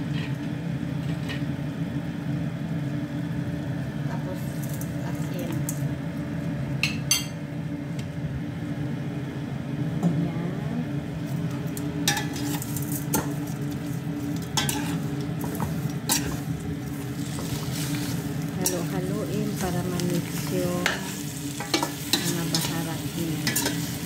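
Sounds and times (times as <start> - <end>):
light sizzle of frying: 0.0 - 8.2, 11.0 - 24.0
steady low hum: 0.0 - 24.0
spoon clinking and scraping pot: 14.6 - 16.4, 20.8 - 22.7, 23.4 - 23.9.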